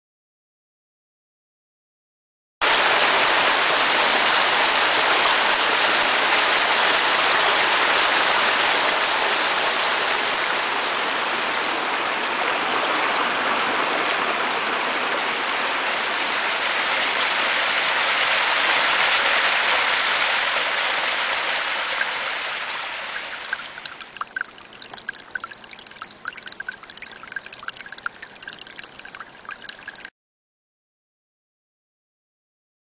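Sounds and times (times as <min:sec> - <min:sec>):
stream water rushing: 0:02.6 - 0:30.1.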